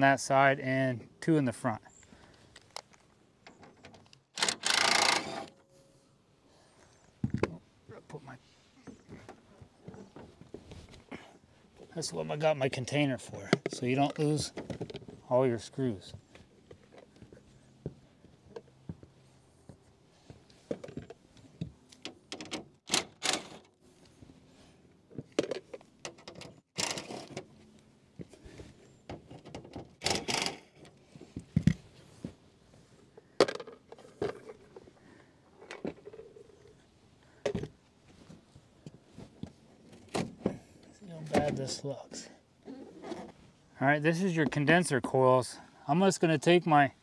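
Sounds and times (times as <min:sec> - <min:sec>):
screws clicking and scraping: 0:04.3 - 0:05.6, 0:26.8 - 0:27.4, 0:30.0 - 0:31.0.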